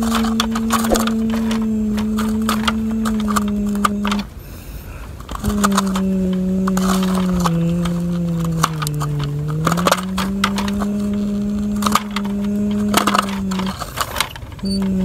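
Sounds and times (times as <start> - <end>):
dirt and stones crunching: 0.6 - 3.2
steady low droning tone: 0.6 - 3.6.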